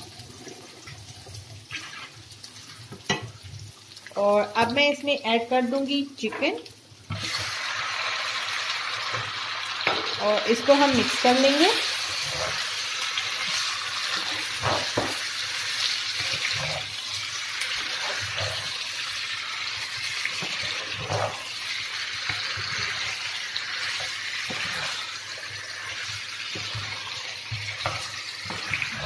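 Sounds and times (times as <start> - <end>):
chicken sizzling in oil: 0.0 - 29.0
wooden spatula scraping pan: 10.7 - 19.3, 20.1 - 21.6, 22.2 - 29.0.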